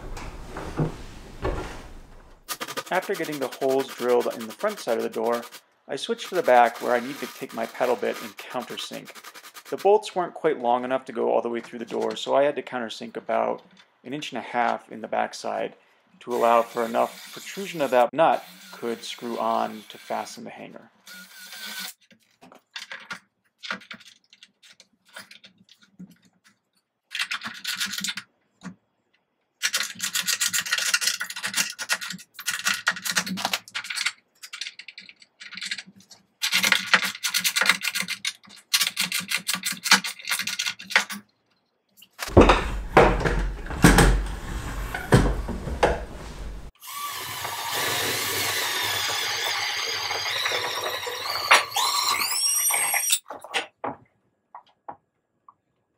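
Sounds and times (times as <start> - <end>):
cordless drill boring wood: 2.7 - 5.6, 6.2 - 8.4, 16.3 - 20.3, 21.1 - 22.0, 46.8 - 53.2
rubbing and scraping on wood: 42.3 - 46.8.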